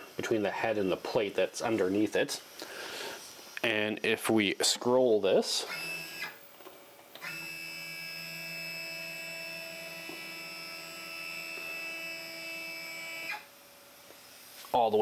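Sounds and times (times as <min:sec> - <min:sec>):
stepper motor whining: 0:05.7 - 0:06.4, 0:07.2 - 0:13.5.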